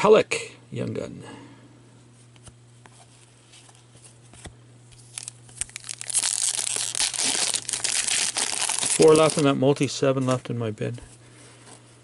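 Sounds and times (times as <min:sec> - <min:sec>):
cards and wrapper clicking: 0:05.0 - 0:09.4
foil pack torn and crinkled: 0:05.0 - 0:09.5.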